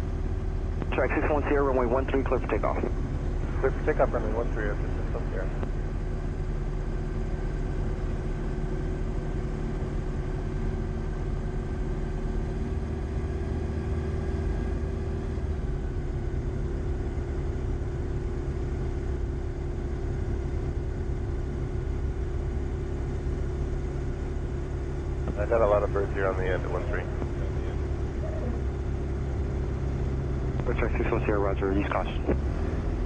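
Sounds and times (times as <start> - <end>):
propeller aircraft engine running: 0.0 - 33.0.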